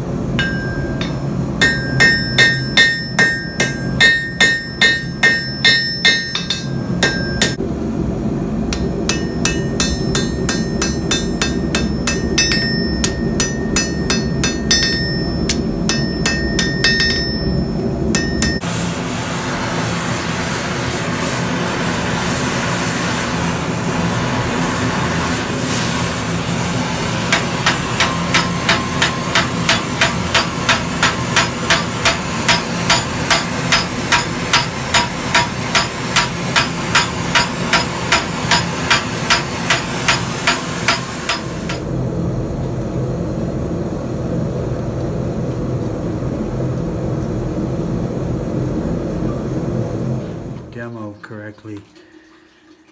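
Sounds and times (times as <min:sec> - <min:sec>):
steady low hum: 0:00.0 - 0:51.3
hammer striking steel on anvil: 0:00.3 - 0:07.6, 0:08.7 - 0:18.8, 0:27.2 - 0:41.9
torch flame hissing: 0:18.6 - 0:41.9.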